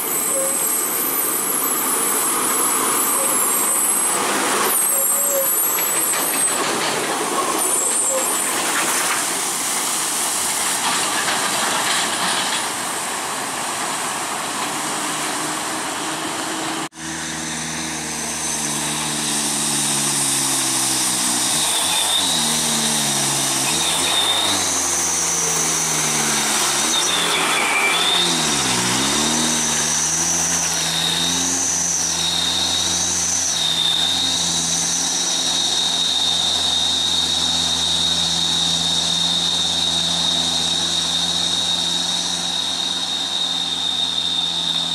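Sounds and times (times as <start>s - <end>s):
diesel truck engine labouring: 0.0s - 44.9s
truck passing on wet road: 0.0s - 44.9s.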